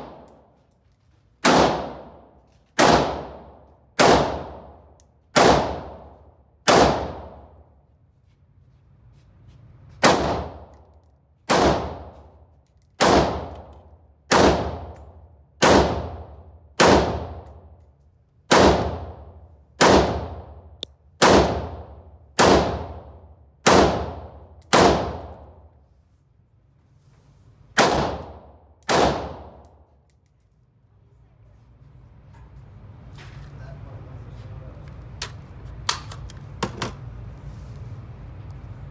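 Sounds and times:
rifle shots echoing indoors: 1.4s - 7.6s, 13.0s - 13.6s, 14.3s - 15.0s, 15.6s - 17.5s, 18.5s - 25.6s, 27.8s - 29.7s.

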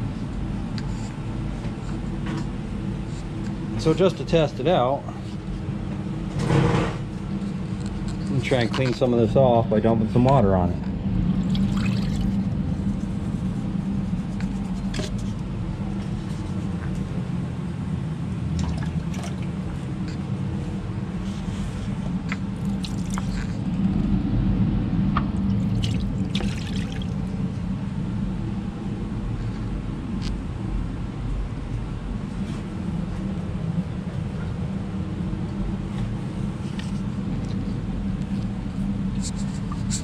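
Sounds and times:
steady low rumble: 0.0s - 40.0s
water pouring and draining: 11.4s - 12.3s, 18.6s - 19.6s, 22.6s - 23.5s, 25.5s - 27.2s
water splashes: 11.4s - 12.3s, 18.6s - 19.5s, 22.6s - 23.3s, 25.5s - 27.3s.

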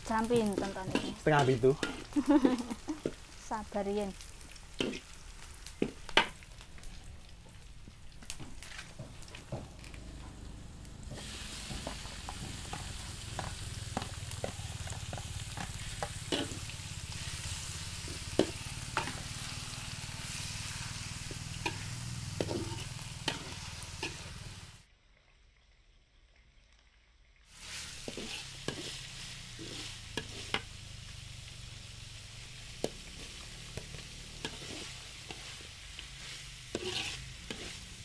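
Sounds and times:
chicken sizzling in wok: 0.0s - 24.9s, 27.3s - 38.0s
metal spatula scraping pan: 0.4s - 3.2s, 4.8s - 5.2s, 12.2s - 24.5s, 27.6s - 30.7s, 32.9s - 38.0s.

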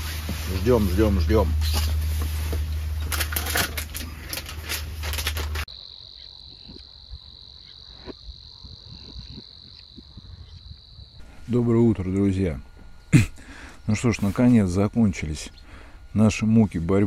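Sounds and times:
high-pitched insect trill: 2.7s - 13.2s.

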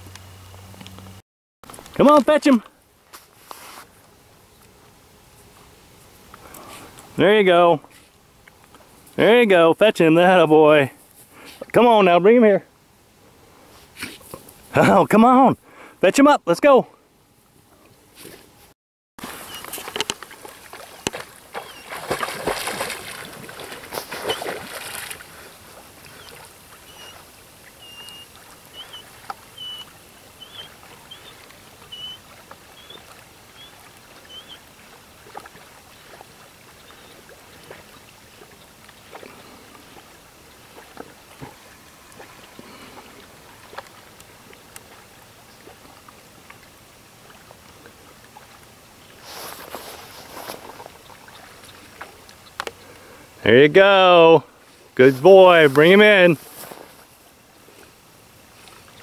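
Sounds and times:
dog paddling in water: 19.2s - 52.9s.

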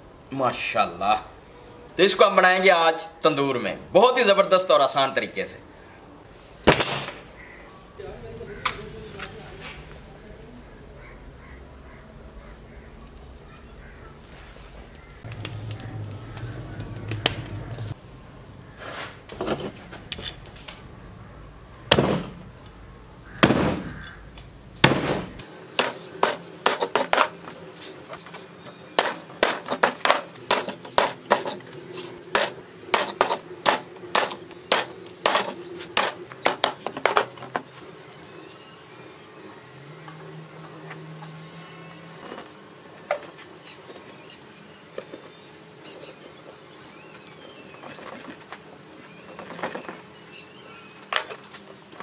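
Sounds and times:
cleaver chopping fish on wood: 23.4s - 24.0s, 24.8s - 27.3s, 29.0s - 31.2s, 32.3s - 37.3s
heavy knocks: 24.8s - 25.9s.

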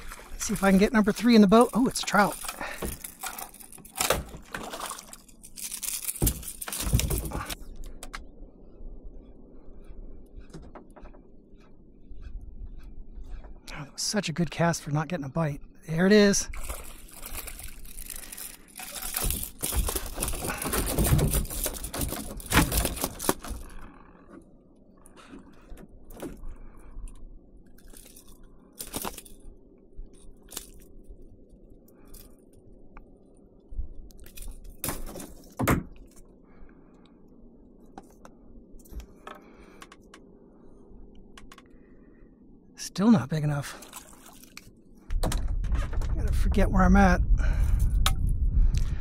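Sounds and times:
rattling and splashing: 0.0s - 7.6s, 16.5s - 24.1s, 43.7s - 46.5s.

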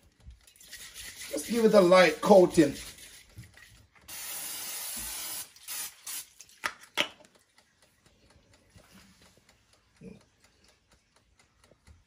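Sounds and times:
cooking spray hissing: 4.1s - 6.4s.

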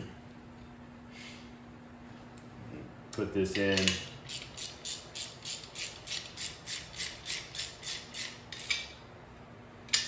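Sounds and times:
ratchet wrench clicking: 3.8s - 8.9s.

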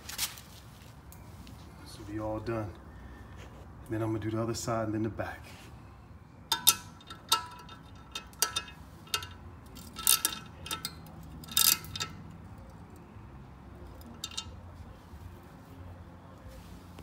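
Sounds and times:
hand ratchet clicking: 6.5s - 12.3s, 14.0s - 14.6s.

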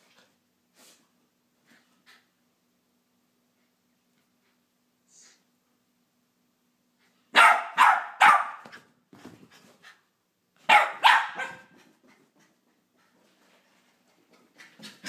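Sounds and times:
puppy barking: 7.3s - 8.8s, 10.6s - 11.7s.

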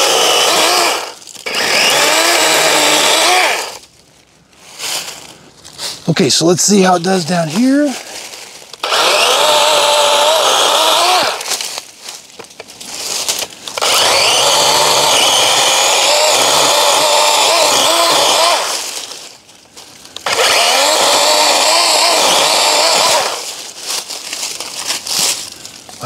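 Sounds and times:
electric chainsaw cutting stems: 0.0s - 3.8s, 8.8s - 11.8s, 13.7s - 19.2s, 20.2s - 23.8s.

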